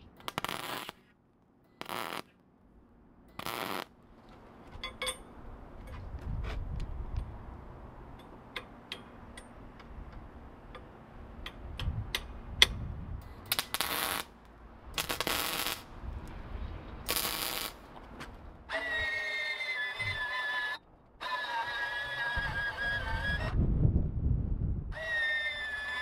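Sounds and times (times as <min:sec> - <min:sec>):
arc welding crackle: 0:00.0 - 0:01.1, 0:01.8 - 0:02.4, 0:03.3 - 0:03.9, 0:13.4 - 0:14.4, 0:15.0 - 0:16.0, 0:17.1 - 0:17.9
metal clicks and taps: 0:08.1 - 0:12.8.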